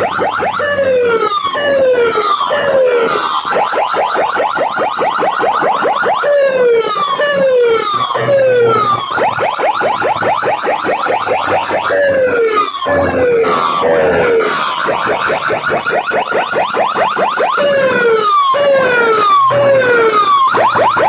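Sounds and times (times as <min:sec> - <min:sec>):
falling siren whoop: 0:00.0 - 0:21.0
rising electronic siren sweeps: 0:00.0 - 0:21.0.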